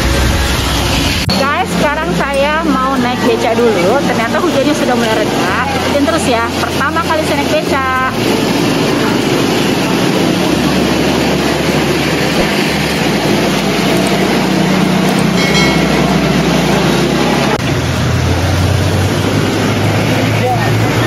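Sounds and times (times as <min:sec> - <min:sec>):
street traffic noise: 0:00.0 - 0:21.0
short high tone: 0:15.3 - 0:17.3.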